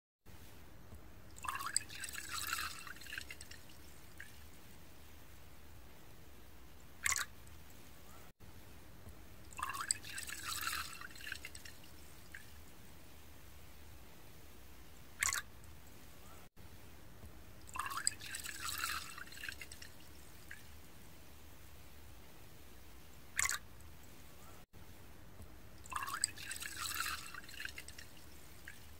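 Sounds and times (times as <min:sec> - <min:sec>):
liquid pouring into ceramic cup: 0:01.4 - 0:04.4, 0:09.6 - 0:12.5, 0:17.7 - 0:20.6, 0:25.8 - 0:28.8.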